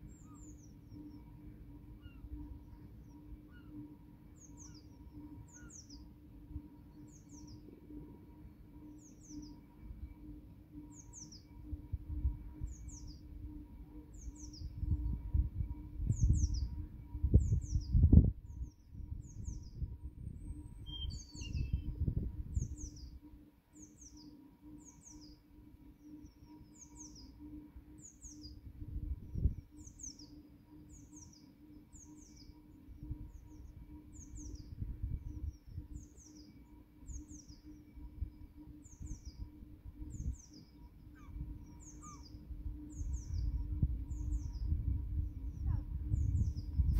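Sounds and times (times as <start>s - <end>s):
songbird singing high notes: 20.4s - 22.0s
low rumbling noise: 41.3s - 46.9s.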